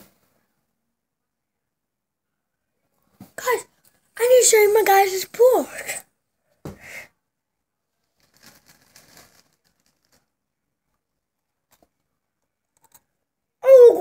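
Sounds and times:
faint rustles: 8.0 - 10.4
boy vocalizing high-pitched: 13.6 - 14.0.

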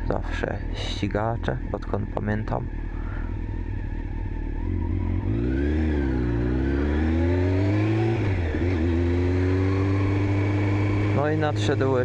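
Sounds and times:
motorcycle engine idling and revving: 0.0 - 12.0.

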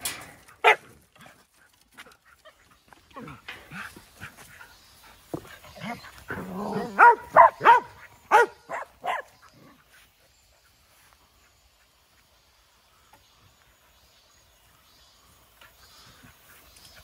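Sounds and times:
dog barking: 0.6 - 0.9, 6.7 - 9.3
dog growling: 5.8 - 7.1.

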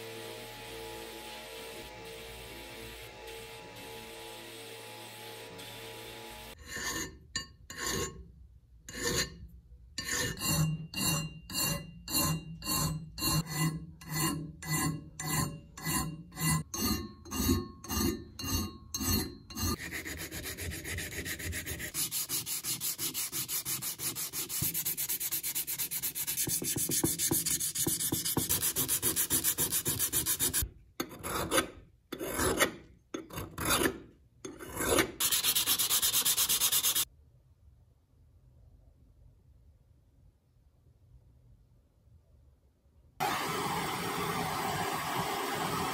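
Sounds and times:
file rasping on metal: 6.6 - 8.2, 8.9 - 9.4, 10.0 - 37.1
sandpaper scrubbing: 19.8 - 30.6, 35.2 - 37.1.

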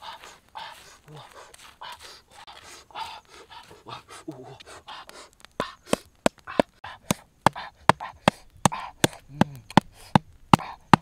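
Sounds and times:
stick raking through embers: 0.0 - 11.0
wooden stake knocks: 7.0 - 11.0.

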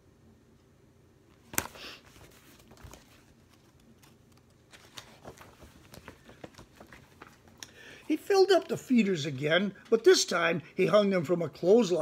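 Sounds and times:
soft paper rustles: 1.3 - 9.1
picture book handling clicks: 1.4 - 7.8.

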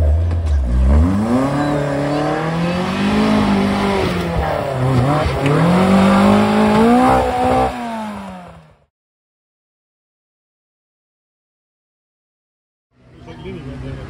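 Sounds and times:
car engine revving hard: 0.6 - 8.9.

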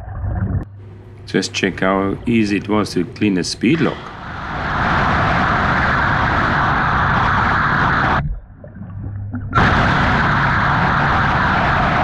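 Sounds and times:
low hum: 0.0 - 12.0
underwater jet rushing hiss: 3.8 - 8.2, 9.6 - 12.0.

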